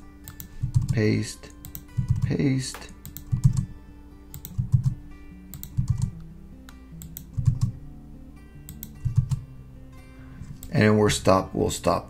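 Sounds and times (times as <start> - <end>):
background music: 0.0 - 12.0
keyboard keystrokes: 1.6 - 3.7, 4.3 - 6.1, 7.0 - 7.7.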